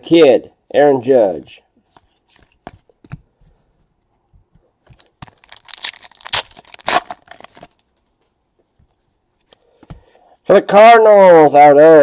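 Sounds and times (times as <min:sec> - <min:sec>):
foil wrapper tearing and crinkling: 0:05.2 - 0:07.8.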